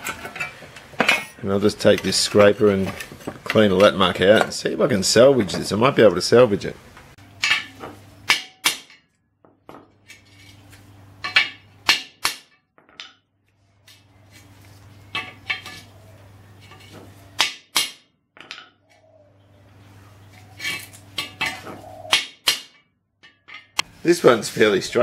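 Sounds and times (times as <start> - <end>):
hammer clanking on steel: 0.0 - 4.6, 7.4 - 9.1, 11.2 - 13.2.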